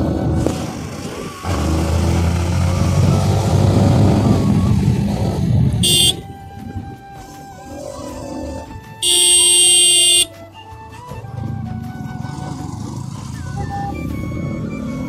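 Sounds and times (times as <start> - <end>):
wind noise on microphone: 0.0 - 7.7, 11.0 - 15.0
motorcycle engine running: 0.6 - 6.3, 9.0 - 10.3
short horn toot: 5.8 - 6.2, 9.0 - 10.3.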